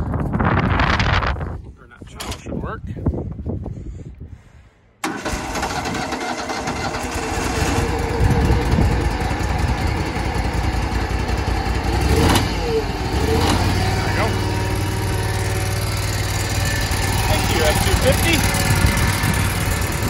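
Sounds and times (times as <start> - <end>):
mower engine starting and running: 5.0 - 20.0.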